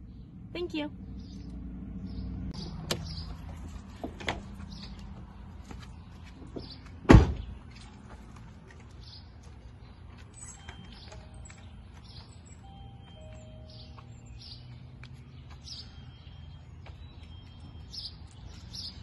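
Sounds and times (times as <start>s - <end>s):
birds chirping: 0.0s - 19.0s
car door shutting thump: 7.0s - 7.5s.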